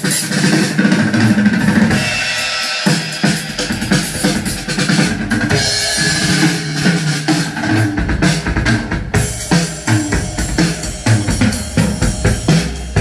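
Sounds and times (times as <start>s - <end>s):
drum-heavy music through speakers: 0.0s - 13.0s.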